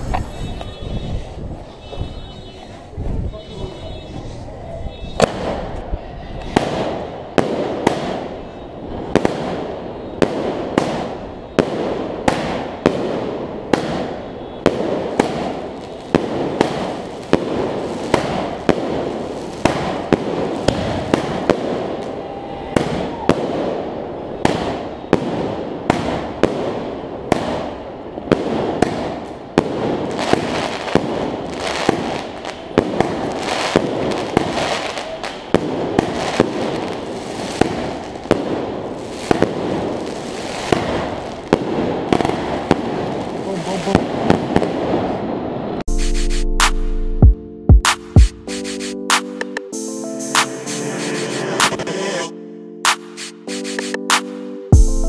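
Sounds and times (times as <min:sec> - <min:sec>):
fireworks cake sharp reports: 0:28.4 - 0:46.8.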